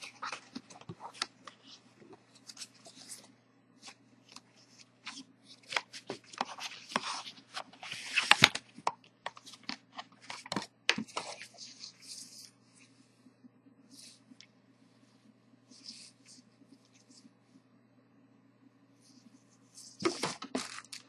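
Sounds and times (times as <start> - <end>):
cardboard and paper rustling: 19.8 - 21.0.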